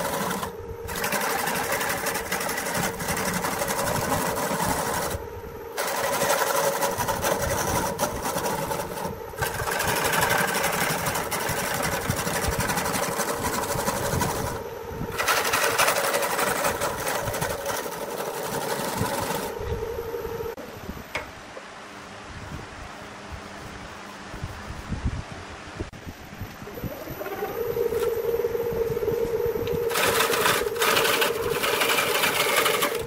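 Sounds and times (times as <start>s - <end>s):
gouge cutting wood: 0.0s - 5.2s, 5.8s - 19.5s, 29.9s - 33.0s
lathe motor hum: 0.0s - 20.6s, 26.6s - 33.0s.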